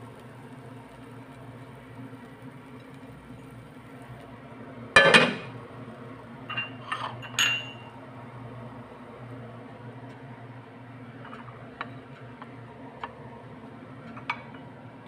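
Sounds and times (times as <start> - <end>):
frying pan clanking on grate: 5.0 - 5.6.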